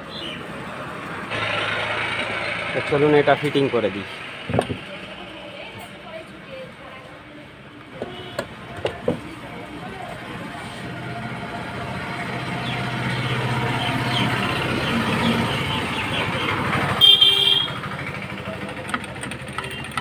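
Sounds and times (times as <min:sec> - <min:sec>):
vehicle engine running: 0:00.6 - 0:06.0, 0:08.5 - 0:20.0
car horn toot: 0:08.0 - 0:08.5, 0:17.0 - 0:17.9.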